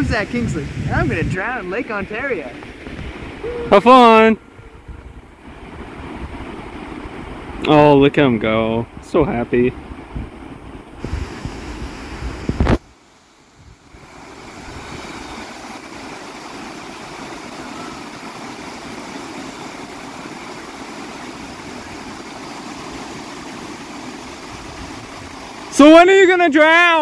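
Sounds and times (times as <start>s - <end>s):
wind buffeting microphone: 0.0s - 12.9s, 21.4s - 25.7s
small waves washing onto sand: 0.0s - 27.0s.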